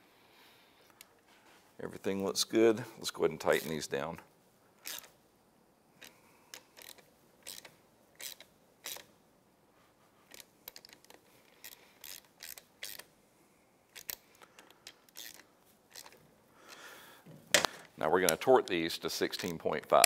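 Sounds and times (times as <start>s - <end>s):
hand ratchet clicking: 4.8s - 5.1s, 6.0s - 9.1s, 10.3s - 13.1s, 14.0s - 16.8s.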